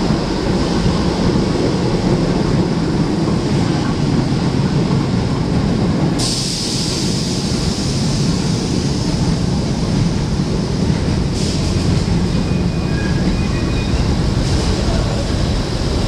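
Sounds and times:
train wheels rumbling on rails: 0:00.0 - 0:16.0
train hiss: 0:06.0 - 0:16.0.

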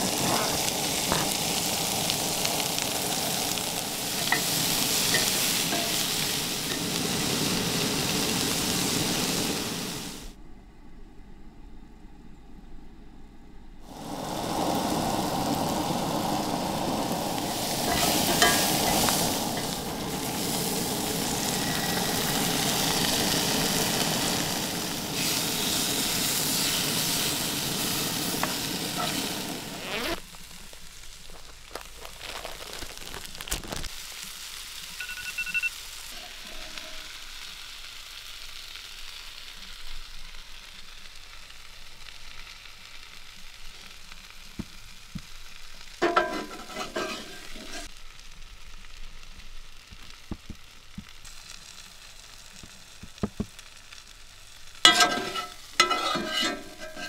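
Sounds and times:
vegetables sizzling in a skillet: 0:00.0 - 0:10.3, 0:13.9 - 0:57.0
utensils clinking: 0:04.1 - 0:06.9, 0:17.8 - 0:19.8, 0:46.0 - 0:47.9, 0:54.9 - 0:57.0
fork stirring: 0:17.9 - 0:18.6, 0:46.0 - 0:47.9, 0:54.9 - 0:57.0.

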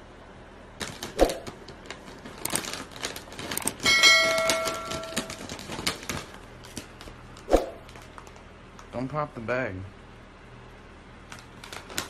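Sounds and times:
chip bag crinkling: 0:00.8 - 0:08.5, 0:11.3 - 0:12.0
bell-like ding: 0:03.9 - 0:05.2.

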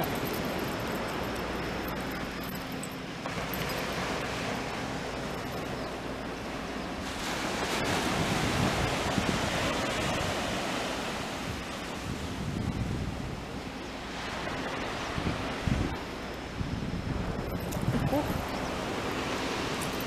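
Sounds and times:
waves breaking on beach: 0:00.0 - 0:20.0
wind on microphone: 0:07.0 - 0:13.6, 0:14.2 - 0:20.0.

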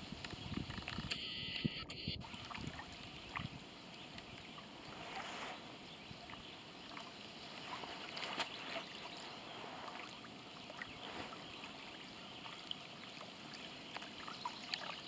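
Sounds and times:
small waves lapping: 0:02.2 - 0:15.0.

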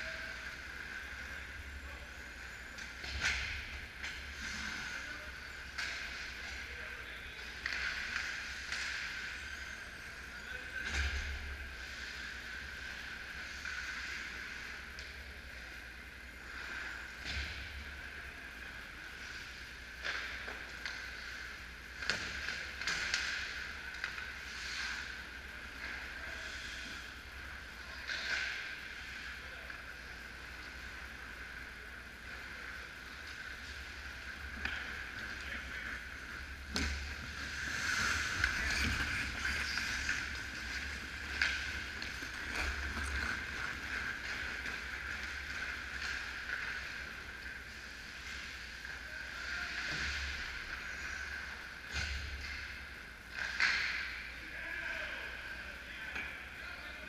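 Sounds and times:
steady background hiss: 0:00.0 - 0:57.0
sticks and puck clacking: 0:02.2 - 0:06.8, 0:07.4 - 0:09.6, 0:19.0 - 0:26.8, 0:32.2 - 0:54.3
skates scraping on ice: 0:32.8 - 0:48.6.

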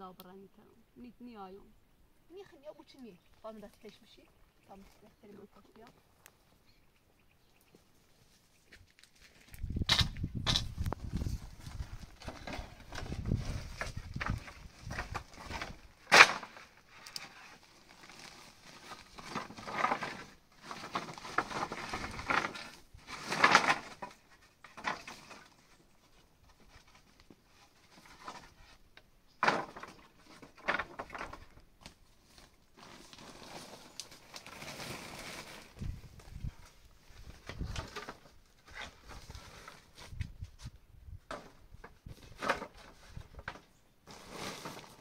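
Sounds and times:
scraping and rustling: 0:08.2 - 0:45.0
plastic sack rustling: 0:10.6 - 0:25.8, 0:29.6 - 0:40.2, 0:42.1 - 0:45.0
wooden boards knocking and clattering: 0:12.2 - 0:16.7, 0:19.1 - 0:25.6, 0:29.4 - 0:31.6, 0:41.3 - 0:43.7.

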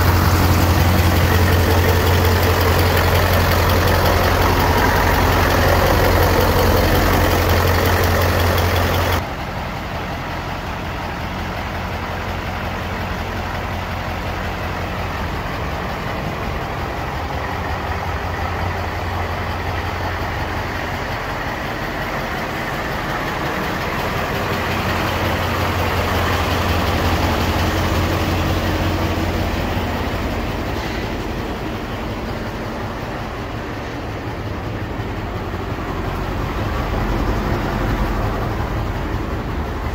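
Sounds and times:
truck diesel engine idling: 0:00.0 - 0:39.9.

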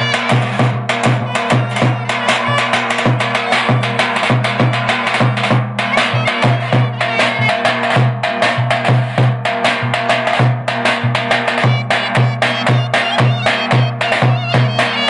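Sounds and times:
clarinet folk melody: 0:00.0 - 0:05.2, 0:05.8 - 0:08.0, 0:11.5 - 0:15.0
bass drum beaten in dance rhythm: 0:00.0 - 0:15.0.

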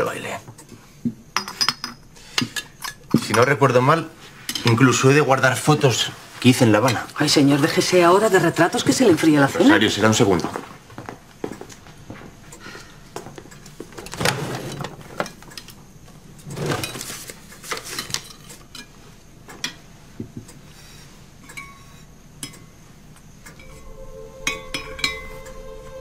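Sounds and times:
things shuffled in wooden drawer: 0:14.0 - 0:15.4, 0:16.4 - 0:18.6
soft music: 0:23.6 - 0:26.0.

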